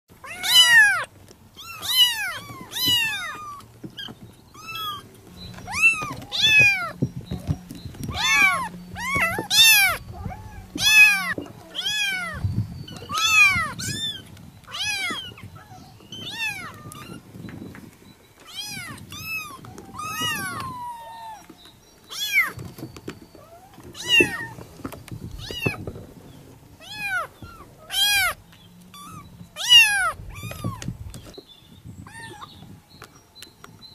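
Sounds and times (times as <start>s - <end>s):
kittens mewing: 0.2s - 7.0s, 8.1s - 17.3s, 18.5s - 21.5s, 26.8s - 30.9s.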